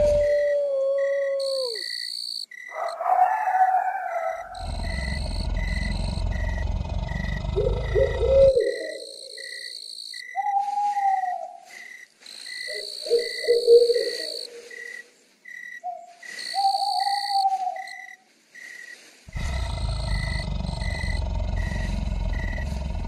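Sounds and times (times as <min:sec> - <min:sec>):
crickets chirping: 0:00.0 - 0:23.0
high insect drone: 0:04.6 - 0:10.4, 0:11.6 - 0:23.0
owl hooting: 0:07.6 - 0:09.6, 0:10.3 - 0:11.6, 0:12.6 - 0:14.8, 0:15.8 - 0:18.1.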